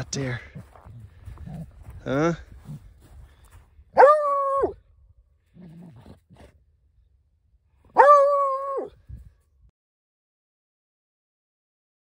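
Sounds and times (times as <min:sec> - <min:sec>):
dog barking: 0:04.0 - 0:04.8, 0:07.9 - 0:08.9
dog growling: 0:05.5 - 0:06.5.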